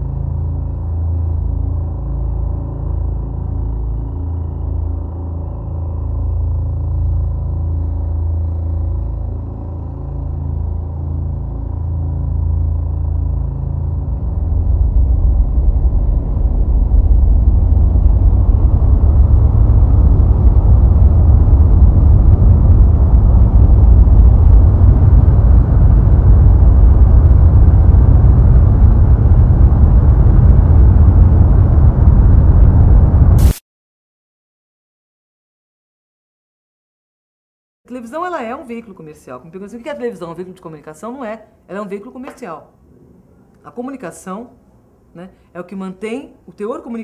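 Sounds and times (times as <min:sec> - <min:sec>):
low rumbling drone: 0:00.0 - 0:33.6.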